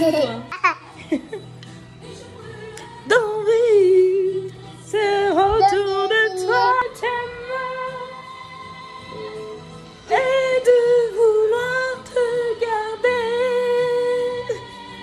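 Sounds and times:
woman singing a cappella: 2.6 - 9.2, 10.1 - 15.0.

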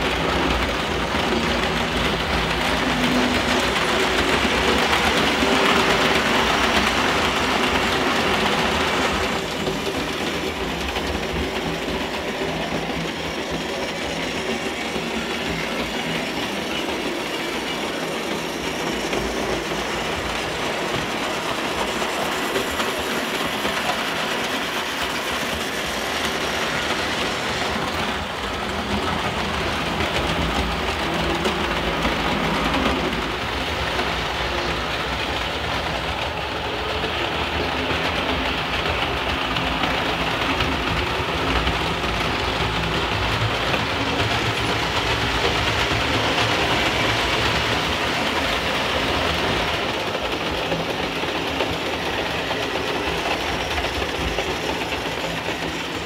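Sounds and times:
model trains running on metal track: 0.0 - 56.0.

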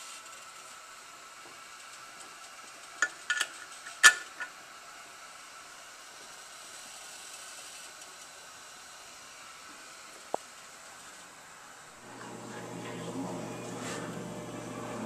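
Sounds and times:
pressure canner hissing: 0.0 - 15.0.

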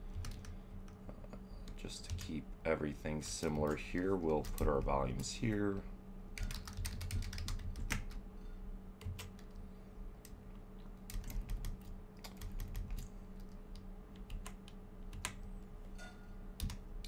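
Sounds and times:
faint low hum: 0.0 - 17.0
keyboard keys clicking: 6.4 - 8.2, 11.0 - 15.4, 16.6 - 16.8.

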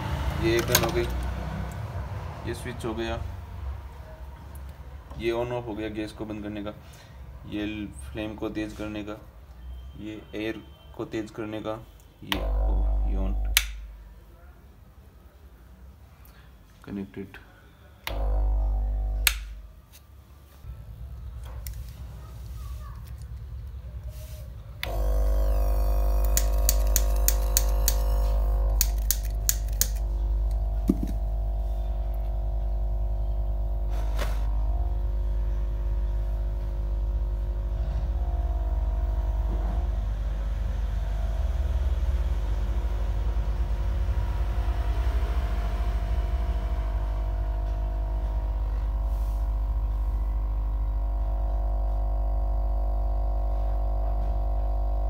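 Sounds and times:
gas torch roaring: 0.0 - 2.2, 12.3 - 14.0, 18.1 - 19.6, 24.0 - 55.0
constant hum: 12.3 - 14.3, 18.0 - 55.0
lighter clicks: 19.2 - 19.5, 26.2 - 30.1.

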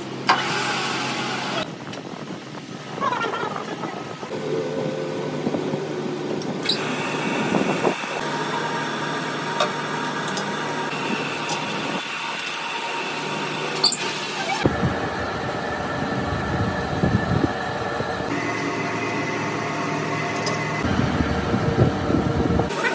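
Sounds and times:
lathe motor hum and whine: 0.0 - 1.8, 4.2 - 22.9.

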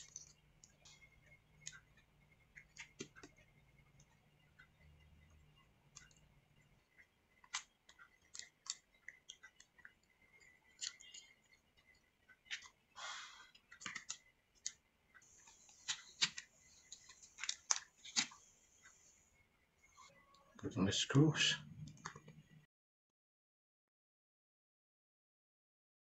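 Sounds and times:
small clicks and taps: 0.0 - 12.8, 13.5 - 18.4.

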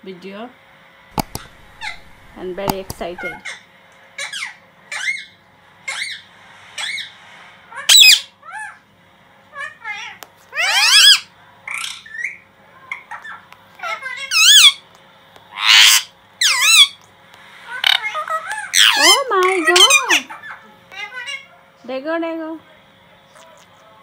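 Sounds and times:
parakeets squawking: 1.2 - 3.6, 9.6 - 14.8, 15.5 - 17.0, 17.7 - 21.5.

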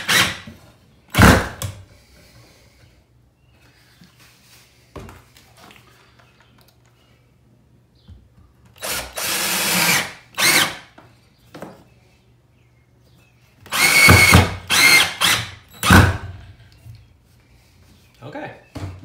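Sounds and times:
cordless drill whining: 0.0 - 0.4, 8.8 - 10.9, 13.7 - 16.2.

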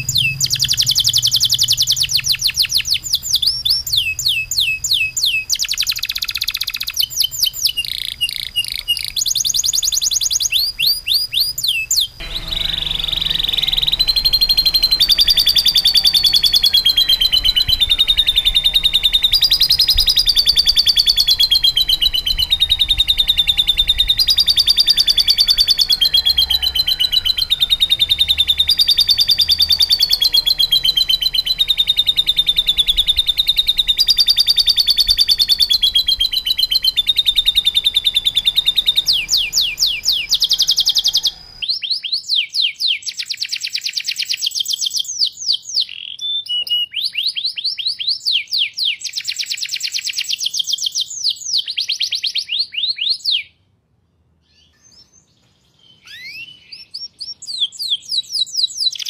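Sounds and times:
canary singing down-sweeping notes: 0.0 - 10.4, 12.0 - 41.7
canary singing fast trills: 0.0 - 46.4.

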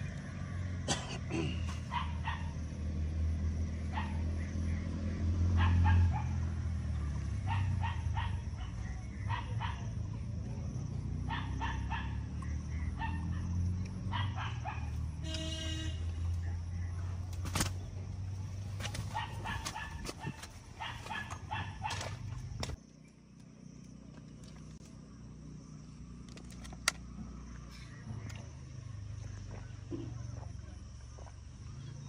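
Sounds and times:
dog barking and yipping: 1.8 - 2.6, 3.9 - 4.3, 5.5 - 6.5, 7.4 - 10.0, 11.2 - 15.1, 18.7 - 22.3
steady low hum: 12.4 - 32.0.

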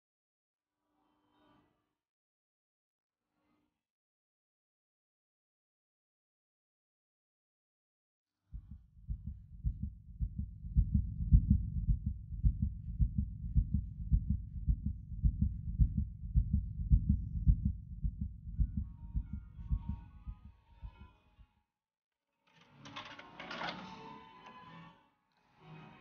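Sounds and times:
heartbeat thuds: 8.6 - 21.1.

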